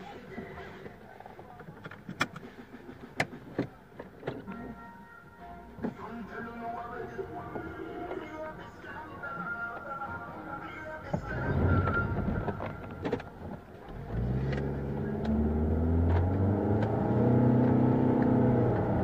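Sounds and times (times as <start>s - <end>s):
car engine accelerating: 11.1s - 19.0s.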